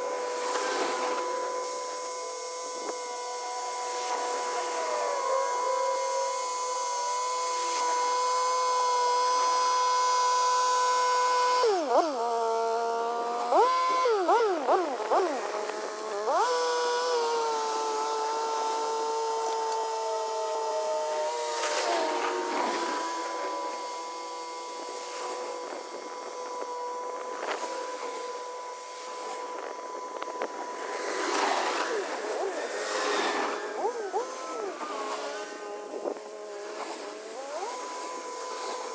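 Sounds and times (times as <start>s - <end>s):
tractor tilling with mechanical whine: 0.0s - 38.9s.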